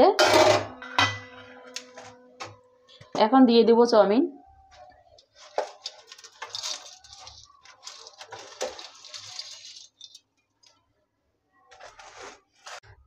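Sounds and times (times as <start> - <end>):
noodles rustling: 5.3 - 10.4.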